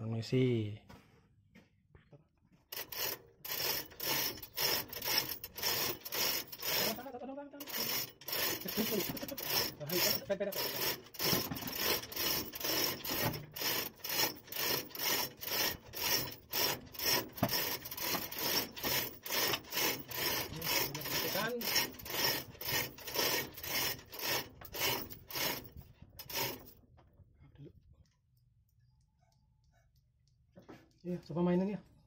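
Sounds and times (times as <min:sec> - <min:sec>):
rhythmic back-and-forth scraping: 0:02.7 - 0:26.8.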